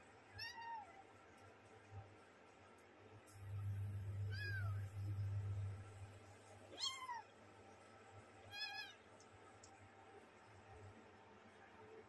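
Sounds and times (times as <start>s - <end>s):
low hum: 3.3s - 6.7s.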